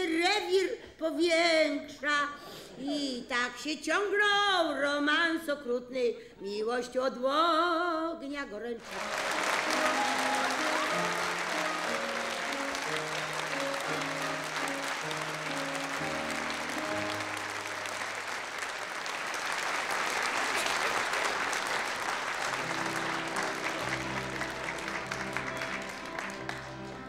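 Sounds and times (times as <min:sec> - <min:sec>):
audience applauding: 0:08.8 - 0:27.0
instrumental stage music: 0:08.8 - 0:27.0.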